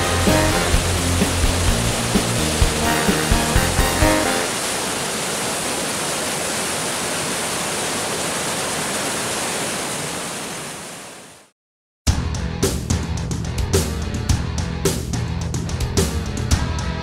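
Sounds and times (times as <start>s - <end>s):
river water rushing: 0.0s - 11.5s.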